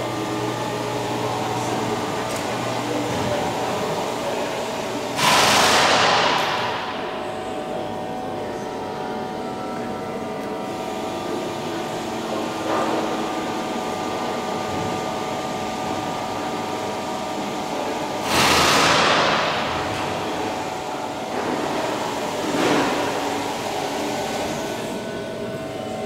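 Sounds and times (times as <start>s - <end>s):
machine hum: 0.0s - 26.0s
loud rushing noise: 5.2s - 7.5s.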